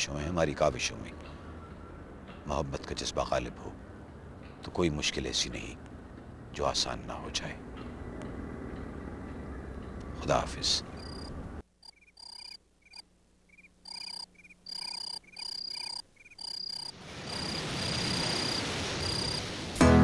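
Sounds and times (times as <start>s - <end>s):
night animals chirping: 10.9s - 19.5s
steady hiss: 16.9s - 20.0s.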